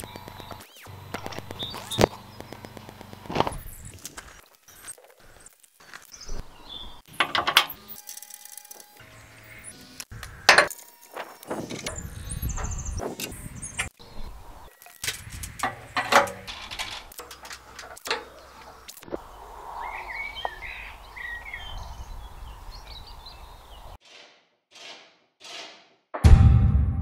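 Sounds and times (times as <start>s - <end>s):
birds chirping: 0.0s - 8.1s, 11.0s - 24.0s
metal tool clicks and clinks: 14.9s - 18.4s.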